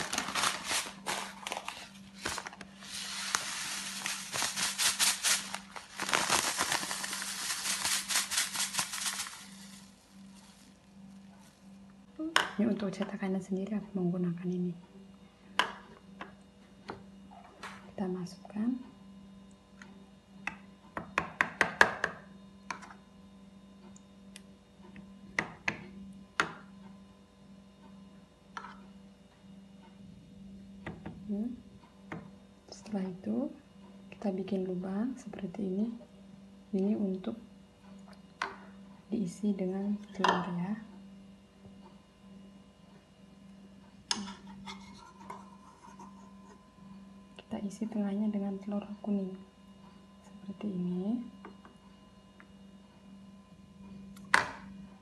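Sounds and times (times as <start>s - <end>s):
plastic packet crinkling and rattling: 0.0s - 10.8s
steady low hum: 0.0s - 21.0s.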